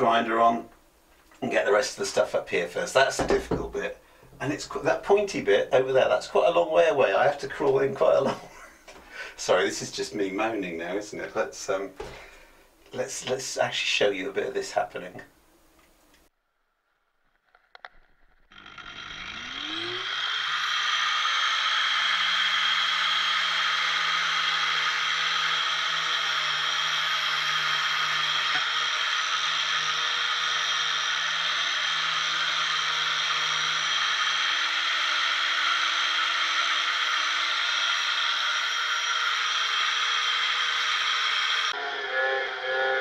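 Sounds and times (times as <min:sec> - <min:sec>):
angle grinder grinding fibreglass: 0:17.1 - 0:43.0.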